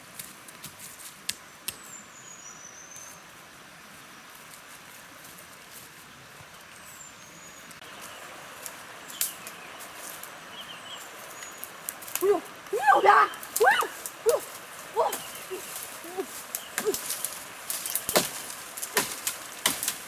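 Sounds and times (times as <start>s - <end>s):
steady outdoor hiss: 0.0s - 20.0s
twigs snapping underfoot: 11.3s - 12.7s, 13.3s - 20.0s
birds whistling: 15.0s - 15.8s.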